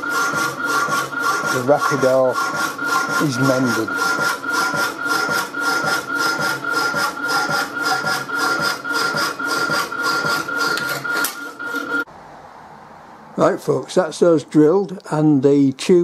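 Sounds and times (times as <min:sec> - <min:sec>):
hacksaw blade rasping on steel: 0:00.0 - 0:12.0
machine high whine: 0:00.0 - 0:12.1.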